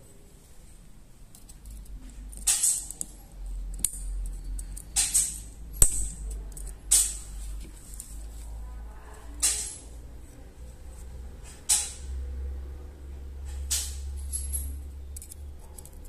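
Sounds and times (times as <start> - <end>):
metallic scrapes and clinks: 13.4 - 16.0.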